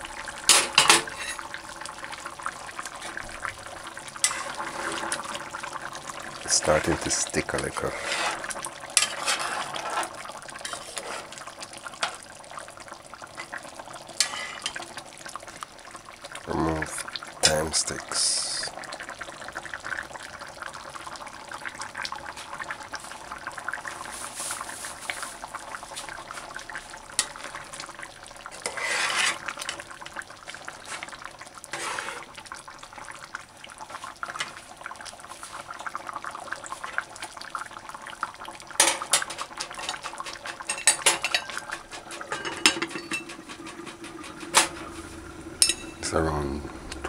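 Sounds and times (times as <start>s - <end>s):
metal spoon scraping a pot: 4.2s - 5.2s, 7.9s - 11.4s, 14.2s - 14.8s, 28.6s - 29.5s, 31.7s - 32.3s
metal lid clinking on pot: 40.7s - 43.4s, 45.6s - 46.0s.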